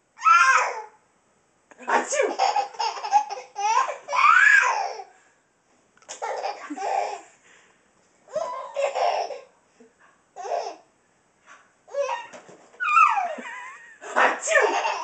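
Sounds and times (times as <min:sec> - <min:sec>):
baby laughing: 0:02.0 - 0:05.1, 0:06.1 - 0:07.3, 0:08.3 - 0:09.5, 0:10.4 - 0:10.8, 0:11.9 - 0:15.0.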